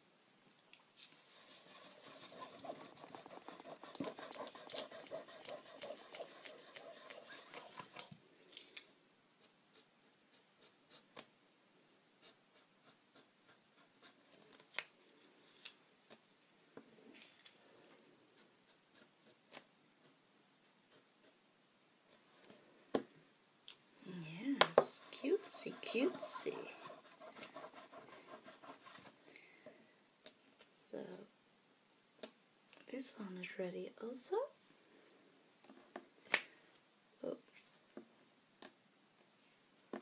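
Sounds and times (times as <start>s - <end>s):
marker scratching on paper: 1.2s - 8.1s, 24.5s - 29.2s.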